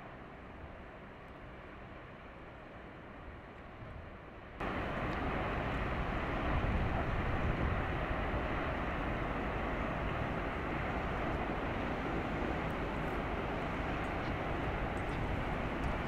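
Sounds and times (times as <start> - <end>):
steady outdoor rumbling: 0.0 - 16.0.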